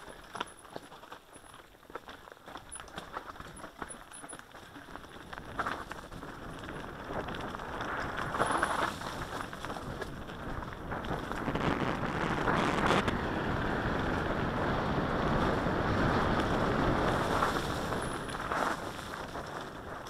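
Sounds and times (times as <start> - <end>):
rumble of riding over rough ground: 0.0 - 20.0
wind buffeting microphone: 5.4 - 20.0.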